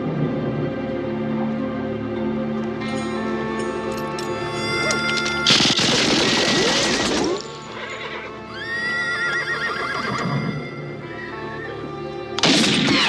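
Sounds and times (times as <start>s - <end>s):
film score music: 0.0s - 13.0s
horses whinnying: 4.7s - 11.7s
loud gunshot blast: 12.4s - 13.0s.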